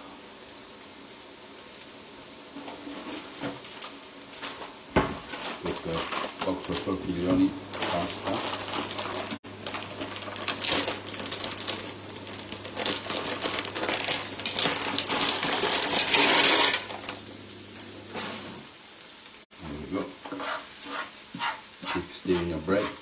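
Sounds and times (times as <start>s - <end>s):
food sizzling in oil: 0.0s - 23.0s
pans scraping and clattering: 2.5s - 6.9s, 13.9s - 17.2s, 20.2s - 23.0s.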